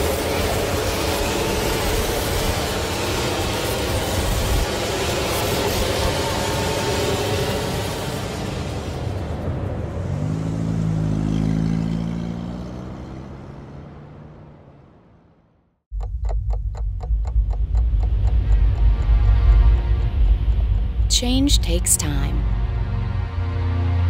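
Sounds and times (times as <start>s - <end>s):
deep bass rumble: 15.9s - 24.0s
droning music with low tones: 15.9s - 24.0s
clock-like ticking: 16.0s - 22.4s.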